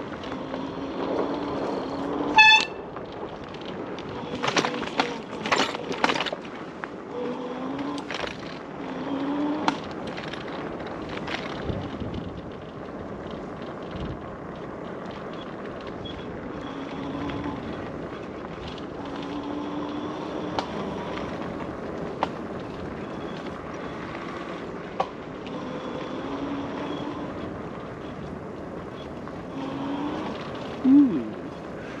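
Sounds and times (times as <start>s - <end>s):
tyre and wind noise: 0.0s - 32.0s
bike knocking over rough ground: 2.4s - 7.0s
short low tone: 30.8s - 31.4s.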